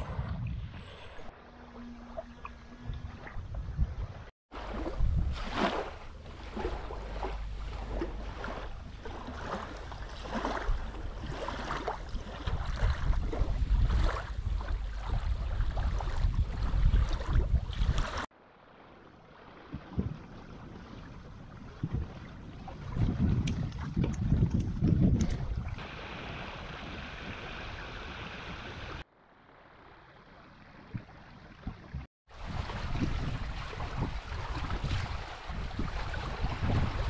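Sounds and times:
wind rumble on microphone: 0:00.0 - 0:18.3, 0:18.9 - 0:29.0, 0:30.5 - 0:37.0
water slapping against hulls: 0:02.1 - 0:18.3, 0:19.6 - 0:27.4, 0:30.9 - 0:37.0.

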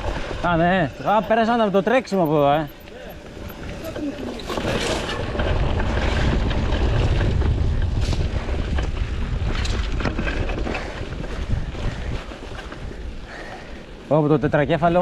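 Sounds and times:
bike clicks and rattles: 0:00.0 - 0:15.0
tyres rolling over rough ground: 0:00.0 - 0:15.0
wind rumble on microphone: 0:03.2 - 0:15.0.

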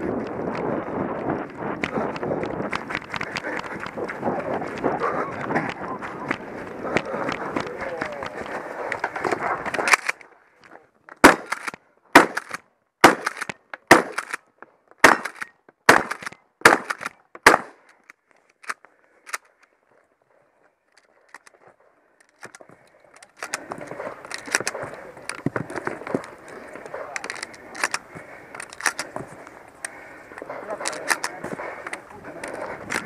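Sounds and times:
shotgun pump clacks: 0:11.2 - 0:14.4, 0:15.0 - 0:19.6, 0:22.2 - 0:29.2, 0:29.8 - 0:33.0
shotgun shots: 0:11.2 - 0:14.4, 0:15.0 - 0:17.8.

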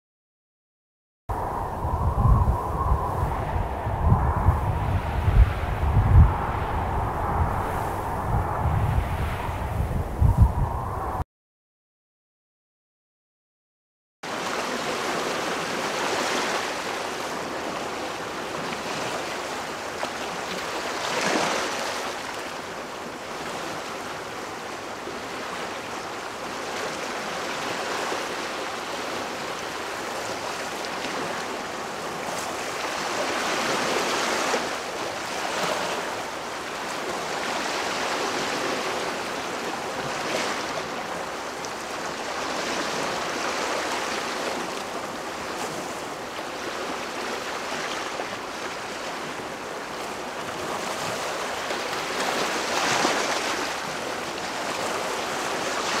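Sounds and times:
strong wind gusts: 0:01.3 - 0:11.2.

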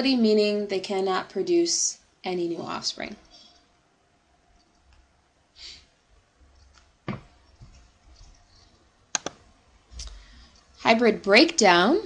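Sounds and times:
computer mouse clicks: 0:09.1 - 0:09.4
soft breath: 0:10.0 - 0:10.8.

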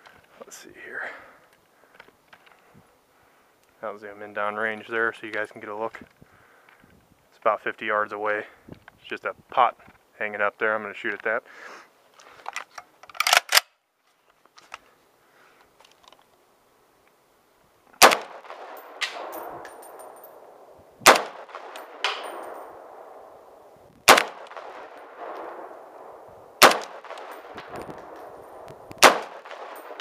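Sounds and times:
rifle shots: 0:18.0 - 0:30.0
metallic clang of steel target: 0:18.4 - 0:20.4, 0:21.0 - 0:22.8
sharp clicks: 0:26.6 - 0:30.0.

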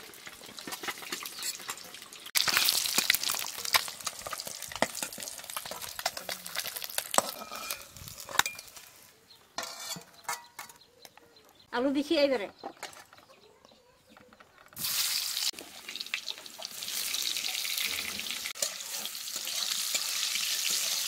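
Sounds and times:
eggs sizzling in hot oil: 0:00.0 - 0:08.8, 0:14.8 - 0:21.0
metal spatula clinking and scraping: 0:00.6 - 0:08.9, 0:09.6 - 0:11.0, 0:17.0 - 0:21.0.

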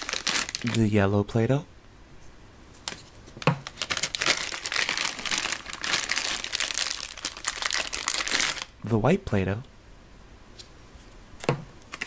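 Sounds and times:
plastic wrapper crinkling: 0:00.0 - 0:00.9, 0:02.8 - 0:08.8.

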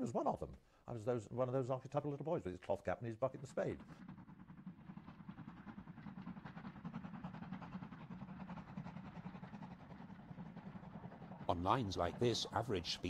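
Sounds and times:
steam locomotive exhaust beats: 0:02.9 - 0:13.0.

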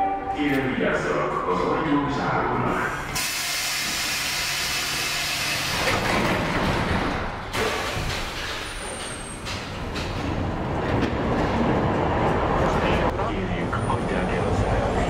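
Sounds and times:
train rumble: 0:00.0 - 0:15.0
pneumatic hiss of train doors: 0:03.2 - 0:05.8.

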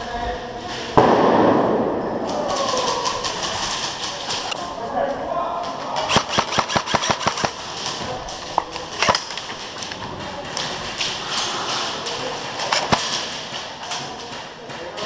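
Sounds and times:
airsoft rifle rapid clicks: 0:06.0 - 0:07.9, 0:08.6 - 0:10.0, 0:12.6 - 0:13.4.

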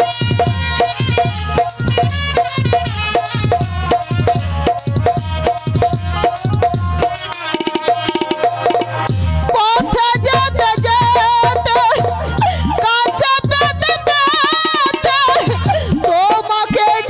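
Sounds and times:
bright high percussion: 0:00.0 - 0:09.4
hand drums beating: 0:00.0 - 0:17.0.

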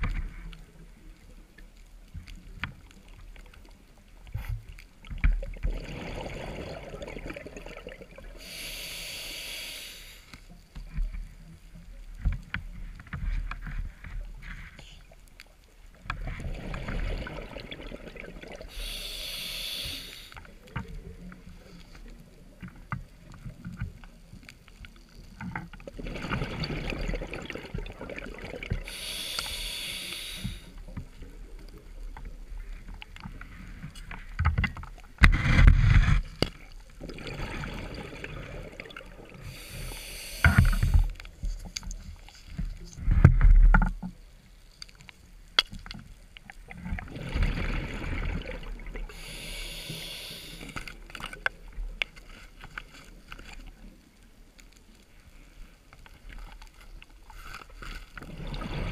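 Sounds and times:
underwater bubbling: 0:00.0 - 0:58.9
regulator breathing hiss: 0:08.4 - 0:10.4, 0:18.7 - 0:20.4, 0:28.8 - 0:30.8, 0:39.4 - 0:41.2, 0:49.1 - 0:50.9.

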